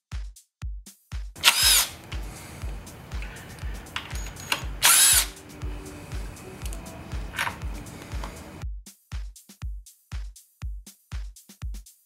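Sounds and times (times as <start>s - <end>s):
background music with beat: 0.0s - 12.0s
impact driver whine: 1.4s - 8.6s.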